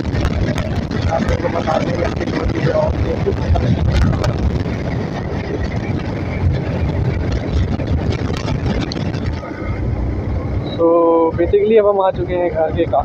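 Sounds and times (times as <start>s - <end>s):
motorcycle engine running: 0.0s - 13.0s
road noise: 0.0s - 13.0s
wind rushing: 0.0s - 13.0s.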